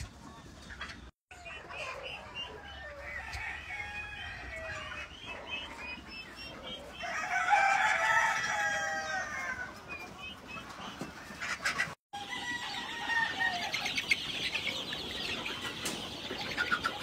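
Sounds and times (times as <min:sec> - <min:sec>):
chickens clucking: 0:00.0 - 0:17.0
rooster crowing: 0:02.6 - 0:04.9, 0:07.0 - 0:09.7, 0:12.2 - 0:13.8.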